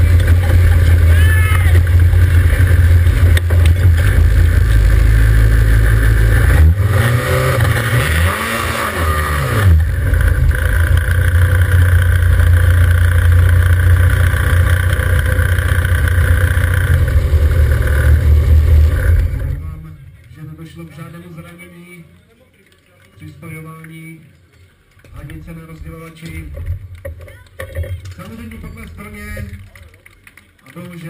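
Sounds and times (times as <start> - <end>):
pump engine running at high revs: 0.0 - 19.6.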